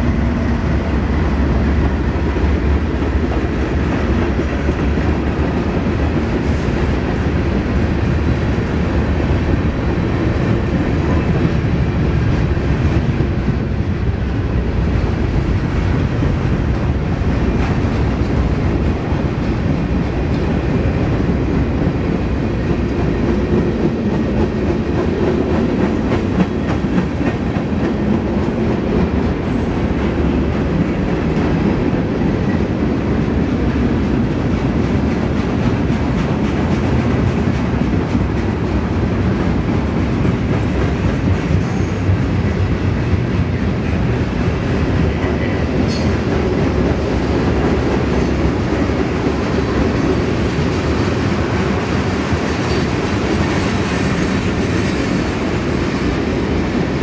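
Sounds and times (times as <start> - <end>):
train wheels rumbling on rail: 0.0 - 57.0.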